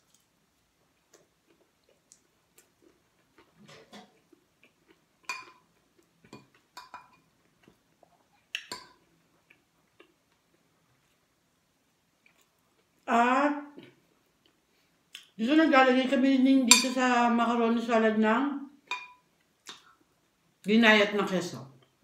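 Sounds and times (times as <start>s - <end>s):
cutlery clinking on ceramic plate: 5.3s - 5.6s, 6.3s - 7.2s, 16.7s - 17.1s, 18.9s - 19.2s.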